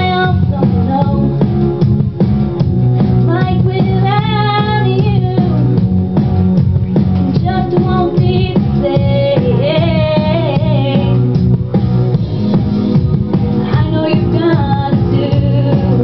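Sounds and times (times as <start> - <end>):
woman singing into microphone: 0.0 - 1.5, 3.2 - 5.8, 7.3 - 11.4, 13.5 - 16.0
band playing with steady beat: 0.0 - 16.0.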